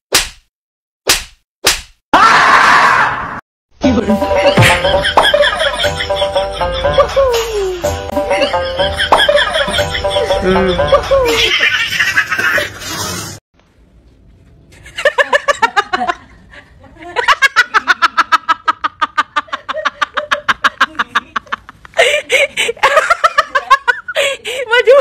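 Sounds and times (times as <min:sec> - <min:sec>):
person cackling laughter: 0:03.9 - 0:12.8, 0:16.9 - 0:24.4.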